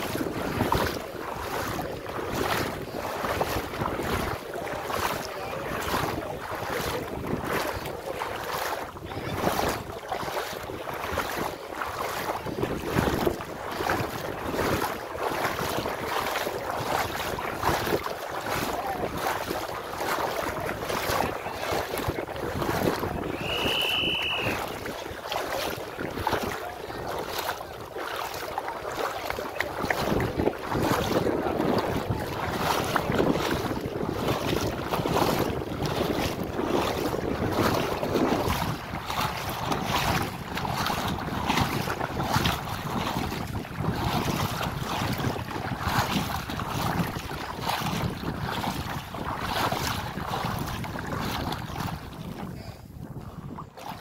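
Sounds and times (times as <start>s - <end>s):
wading through seawater: 0.0s - 54.0s
wind buffeting microphone: 0.0s - 54.0s
high whistle-like tone: 23.4s - 24.6s.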